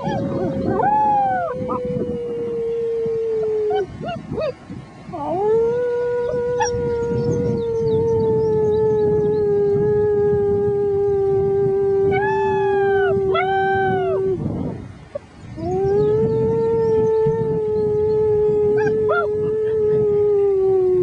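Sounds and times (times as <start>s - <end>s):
person howling: 0.0s - 4.5s, 5.1s - 14.5s, 15.6s - 21.0s
puppies howling: 0.0s - 4.6s, 5.2s - 8.1s, 12.1s - 14.2s.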